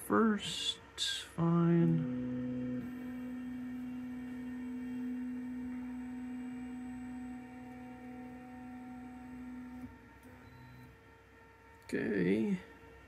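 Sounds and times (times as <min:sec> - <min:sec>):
stepper motors whining: 0:01.4 - 0:11.0.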